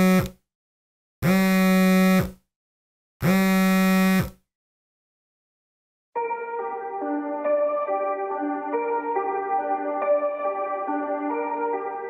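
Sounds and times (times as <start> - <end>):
smartphone alarm buzzing: 0.0 - 0.4, 1.2 - 2.4, 3.2 - 4.4.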